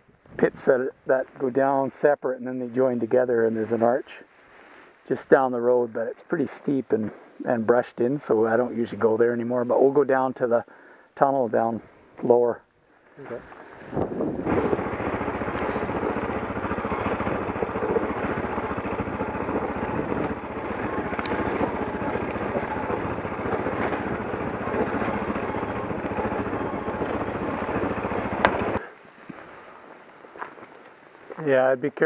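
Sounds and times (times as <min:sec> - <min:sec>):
tyres crunching and rattling on gravel: 0:13.4 - 0:31.6
motorcycle engine running: 0:13.8 - 0:28.9.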